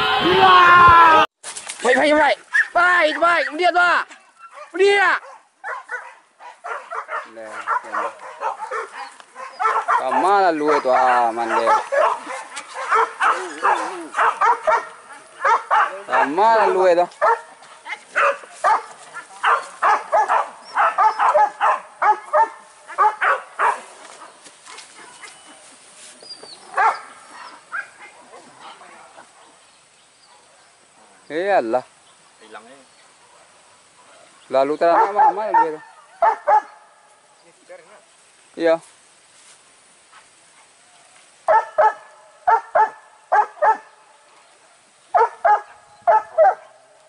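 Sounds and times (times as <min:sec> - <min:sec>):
dogs barking: 0:04.4 - 0:25.5, 0:26.7 - 0:29.6, 0:33.2 - 0:37.0, 0:41.5 - 0:44.0, 0:45.1 - 0:46.8.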